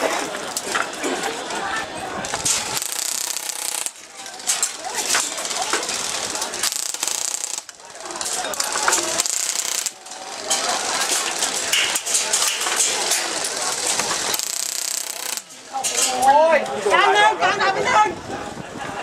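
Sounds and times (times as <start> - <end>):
airsoft guns firing bursts: 2.4 - 15.7.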